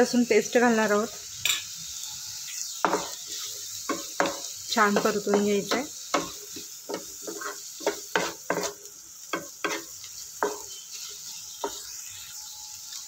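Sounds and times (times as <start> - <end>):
onions sizzling in oil: 0.0 - 13.0
wooden spatula scraping pan: 2.9 - 10.7.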